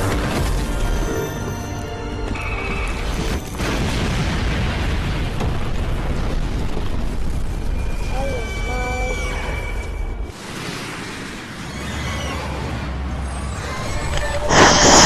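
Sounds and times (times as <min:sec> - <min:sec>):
rumbling explosion: 0:03.0 - 0:08.7.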